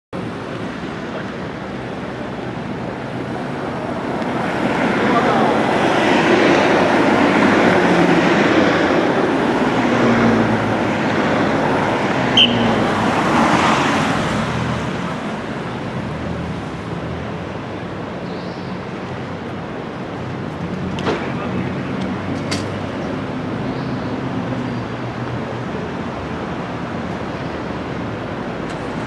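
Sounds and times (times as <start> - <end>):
cars driving past: 0.2 - 29.0.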